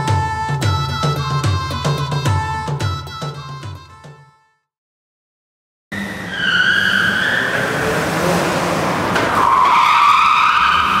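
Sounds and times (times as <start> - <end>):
car engine: 5.9 - 11.0
tyres squealing: 6.0 - 8.2, 9.1 - 11.0.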